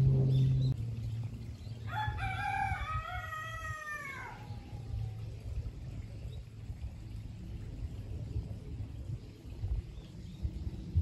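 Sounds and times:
rooster crowing: 0:01.9 - 0:04.9.

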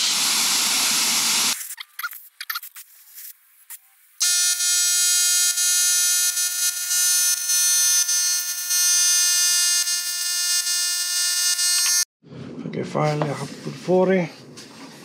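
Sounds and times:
tyre inflator buzzing whine: 0:04.2 - 0:12.1.

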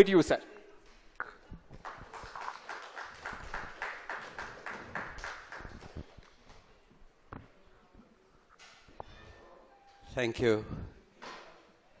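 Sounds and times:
light applause: 0:01.7 - 0:06.6.

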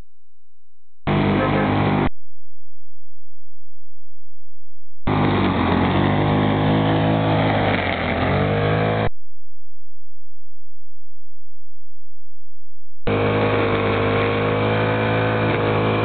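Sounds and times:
brush cutter engine cutting grass: 0:01.1 - 0:02.1, 0:05.1 - 0:09.1, 0:13.1 - 0:16.0.

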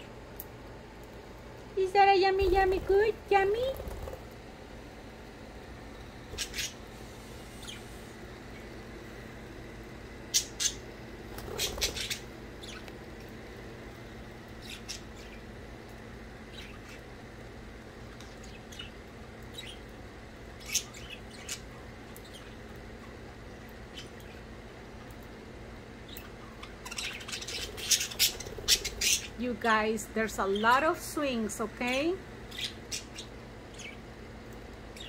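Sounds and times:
budgerigars chirping: 0:06.4 - 0:06.8, 0:10.3 - 0:10.8, 0:11.5 - 0:12.8, 0:20.6 - 0:22.6, 0:26.1 - 0:29.4, 0:32.5 - 0:34.0.

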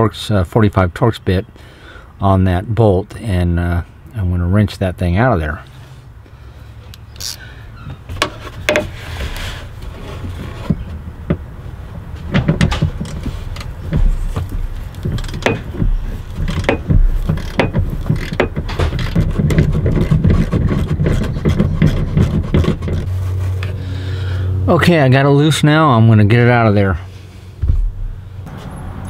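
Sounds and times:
arm rubbing against plastic trim: 0:08.1 - 0:11.5, 0:12.2 - 0:23.8
wrench metallic clicks and knocks: 0:12.4 - 0:23.0.

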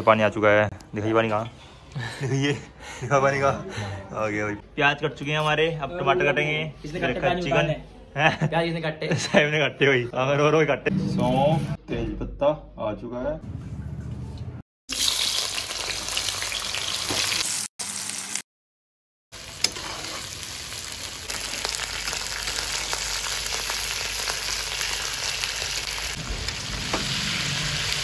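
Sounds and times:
spices sizzling in hot oil: 0:14.9 - 0:18.4, 0:19.4 - 0:28.0.

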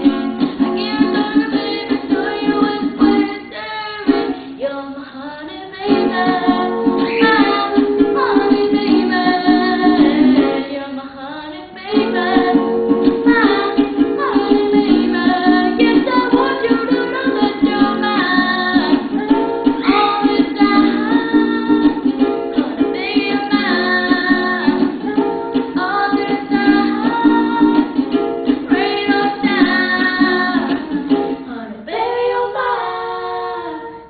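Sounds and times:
ukulele strumming: 0:00.0 - 0:34.0
boy singing: 0:00.8 - 0:12.6, 0:13.2 - 0:28.0, 0:28.7 - 0:34.0.

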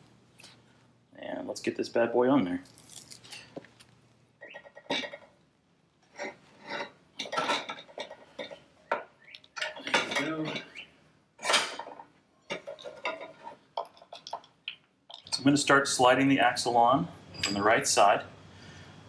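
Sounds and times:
metal parts knocking and clinking: 0:06.8 - 0:10.8, 0:11.4 - 0:15.4.

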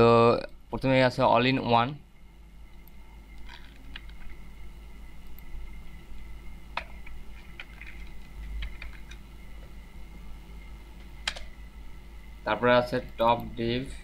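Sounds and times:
low electrical hum: 0:00.0 - 0:14.0
computer keyboard and mouse clicks: 0:06.8 - 0:09.2, 0:11.2 - 0:11.5.

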